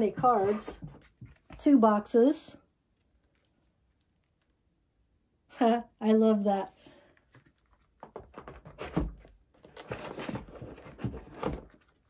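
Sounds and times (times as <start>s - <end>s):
cardboard scraping and rustling: 0.0s - 1.6s, 8.0s - 12.0s.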